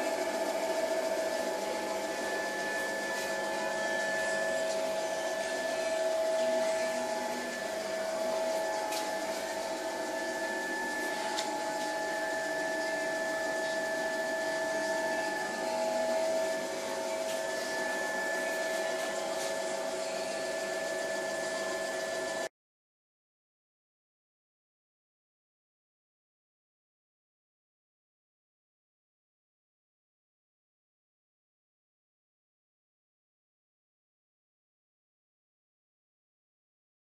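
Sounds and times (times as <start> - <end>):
drill press motor hum and whine: 0.0 - 22.5.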